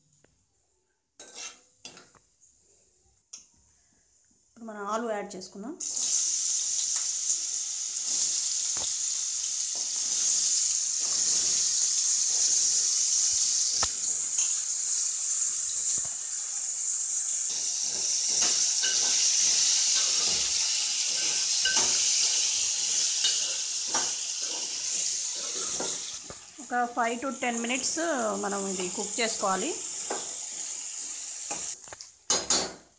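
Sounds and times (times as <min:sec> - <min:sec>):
metal spoon scraping a pan: 0:01.2 - 0:02.1, 0:09.7 - 0:15.1, 0:17.1 - 0:26.4, 0:29.9 - 0:32.7
potatoes sizzling in hot oil: 0:05.8 - 0:32.7.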